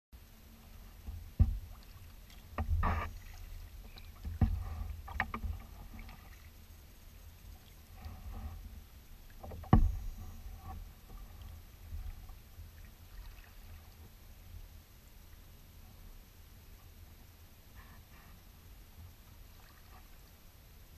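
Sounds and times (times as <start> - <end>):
paddle knocking on kayak hull: 1.0 - 3.2, 4.1 - 6.1, 9.4 - 10.2
water splashing and dripping: 1.3 - 6.5.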